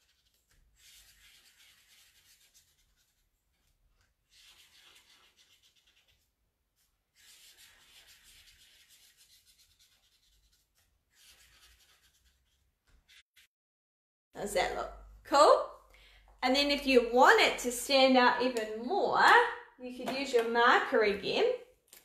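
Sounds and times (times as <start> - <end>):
marker scratching on paper: 0.0 - 13.5.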